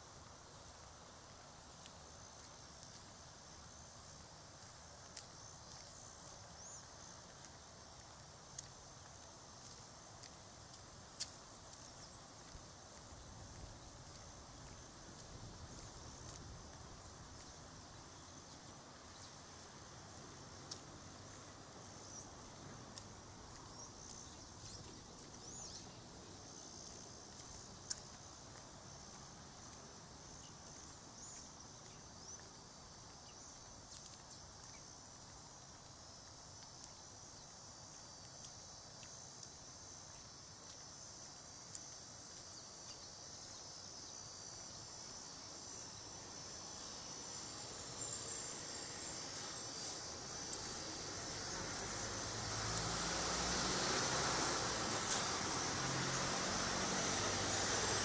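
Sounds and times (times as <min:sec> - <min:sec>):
insects chirring: 0:00.0 - 0:58.0
bird chirps: 0:23.7 - 0:26.0.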